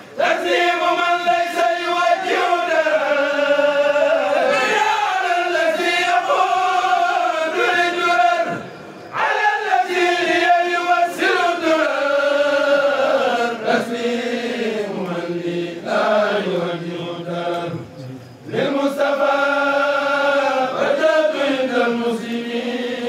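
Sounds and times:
men chanting religious poetry: 0.0 - 23.0.

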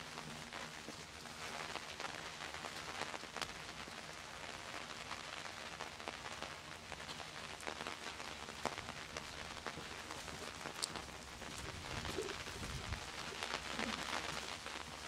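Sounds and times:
rain on cobblestones: 0.0 - 15.0
raindrop ticks: 5.8 - 15.0.

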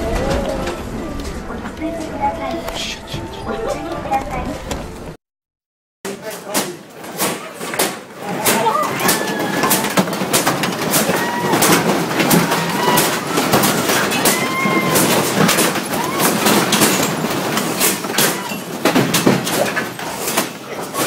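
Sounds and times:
objects clattering and rattling: 6.1 - 21.0.

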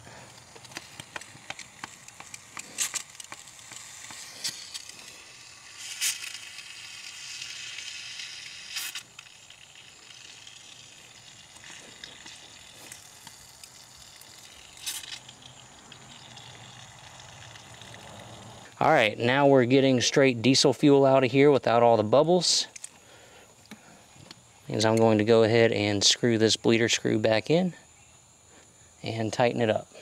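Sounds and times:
fuel and air hissing from bleeder screw: 0.0 - 18.8.

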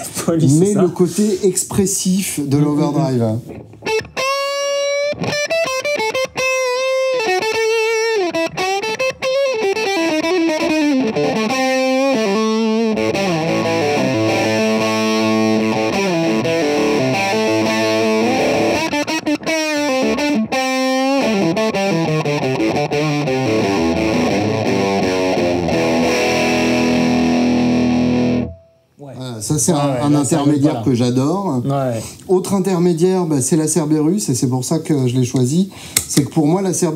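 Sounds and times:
fuzzy electric guitar: 3.4 - 28.9.

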